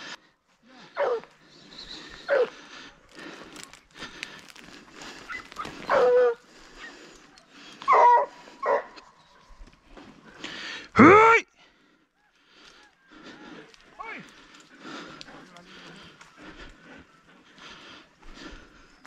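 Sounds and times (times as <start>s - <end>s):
hunting dogs yelping: 0.8s - 2.7s, 5.1s - 9.6s.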